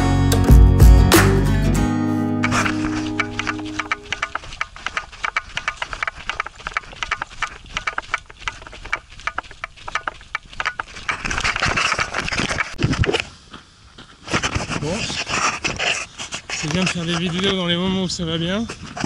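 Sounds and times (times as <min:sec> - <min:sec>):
hand rubbing camera: 0:02.4 - 0:13.3, 0:14.2 - 0:17.6.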